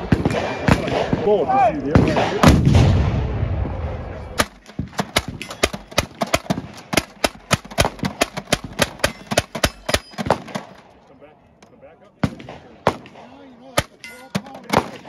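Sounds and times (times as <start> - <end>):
blast rumble: 1.9 - 6.0
gatling gun firing: 4.4 - 10.8.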